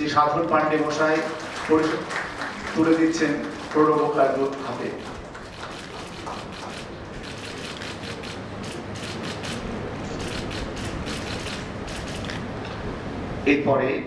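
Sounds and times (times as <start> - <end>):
low room hum: 0.0 - 14.0
camera shutters clicking: 2.8 - 12.5.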